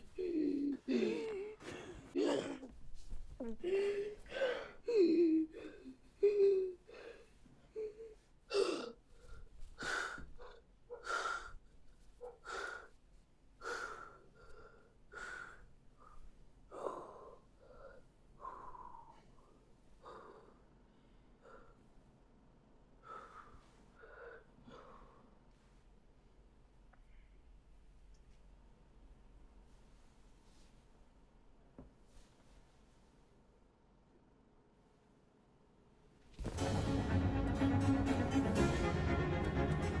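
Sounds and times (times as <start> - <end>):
boy gasping breaths: 0.0 - 2.4, 3.4 - 13.0, 13.6 - 21.9, 23.0 - 25.4.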